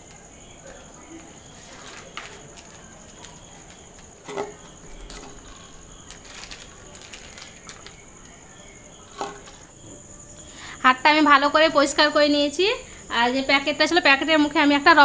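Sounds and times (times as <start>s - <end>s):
crickets chirping: 0.0s - 15.0s
plastic packet crinkling: 1.6s - 4.1s, 5.0s - 8.2s.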